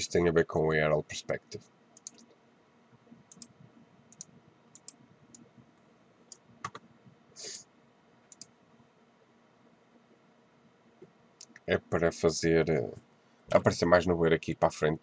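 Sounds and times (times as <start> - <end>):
mouse buttons clicking: 3.3 - 3.5.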